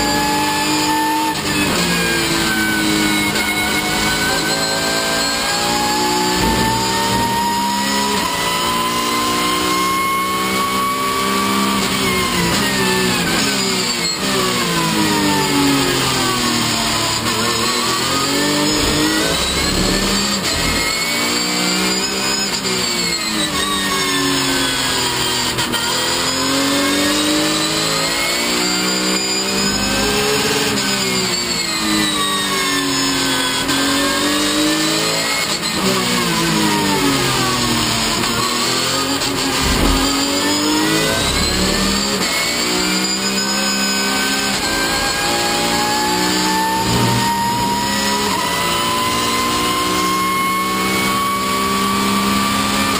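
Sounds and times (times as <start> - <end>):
race car engine revving: 1.5 - 9.7, 15.4 - 21.8, 37.2 - 42.8.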